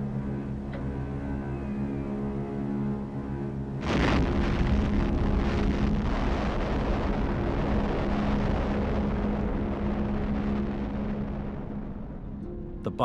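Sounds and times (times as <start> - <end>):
explosion rumble: 3.8 - 12.3.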